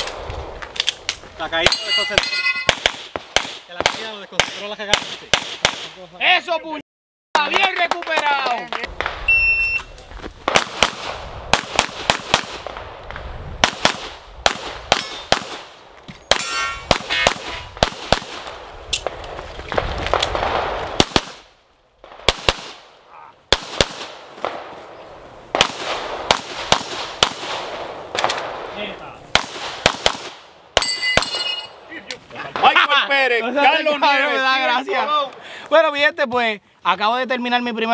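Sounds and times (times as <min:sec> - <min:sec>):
ringing metallic tone: 0:01.7 - 0:02.7, 0:30.8 - 0:31.8
pistol gunfire: 0:01.7 - 0:05.9, 0:10.5 - 0:12.9, 0:13.6 - 0:19.2, 0:20.1 - 0:22.9, 0:23.5 - 0:24.7, 0:25.5 - 0:28.7, 0:29.3 - 0:31.5.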